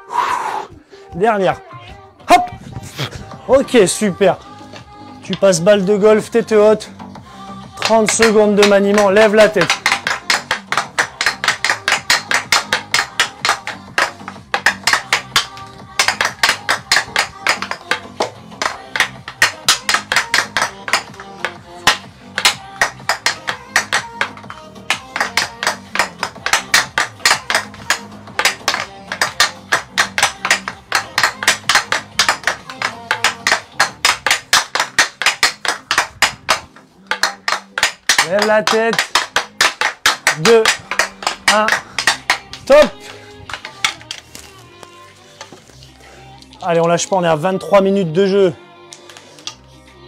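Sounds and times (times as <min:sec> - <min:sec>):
faint background music: 0:00.0 - 0:50.0
hockey stick tapping a golf ball: 0:07.8 - 0:44.5.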